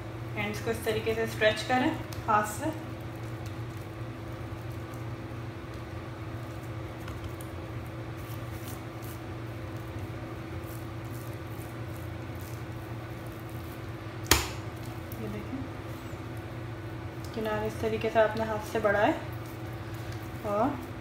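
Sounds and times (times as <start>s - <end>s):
steady low hum: 0.0s - 21.0s
dough being handled: 0.4s - 21.0s.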